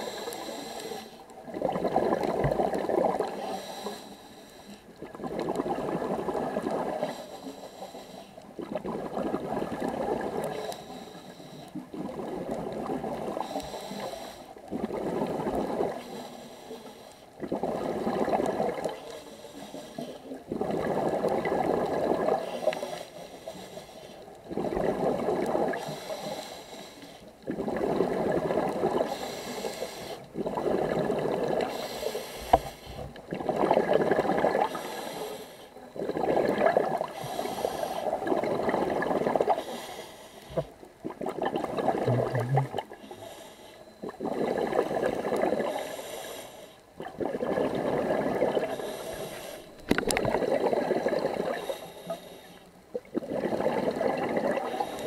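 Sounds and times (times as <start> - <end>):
diver breathing through regulator: 0.0 - 1.3, 2.2 - 4.9, 6.8 - 8.4, 10.2 - 11.8, 13.2 - 33.2, 34.0 - 40.8, 41.6 - 46.9, 47.6 - 55.0
exhaled bubbles rushing: 1.5 - 3.4, 8.6 - 10.5, 30.4 - 31.7, 33.3 - 34.8, 36.0 - 37.1, 38.1 - 39.6, 41.0 - 43.0, 47.0 - 48.8, 49.7 - 51.7, 52.9 - 55.0.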